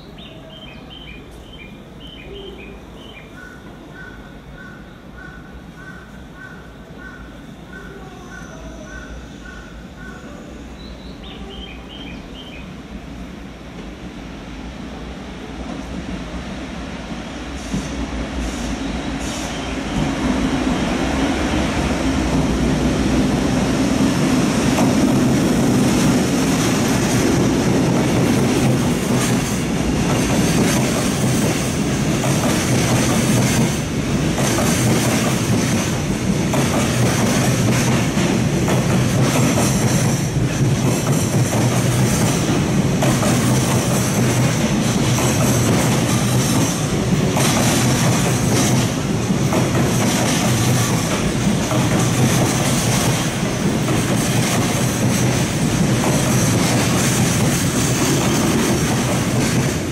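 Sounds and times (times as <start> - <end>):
freight train rumbling past: 0.0 - 59.9
wheels clacking over rail joints: 24.7 - 59.9.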